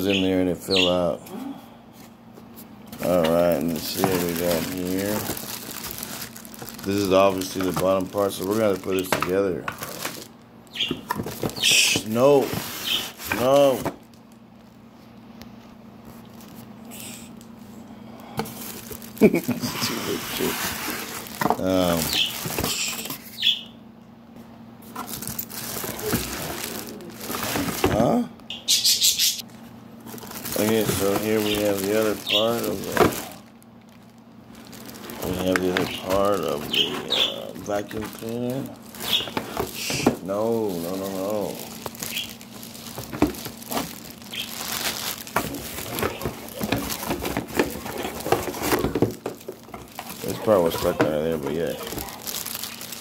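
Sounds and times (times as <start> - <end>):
plastic bags crinkling: 2.9 - 14.8, 18.4 - 23.3, 24.8 - 28.2, 29.4 - 53.0
cardboard box rustling: 3.0 - 14.0, 24.9 - 28.1, 30.1 - 33.5, 34.6 - 53.0.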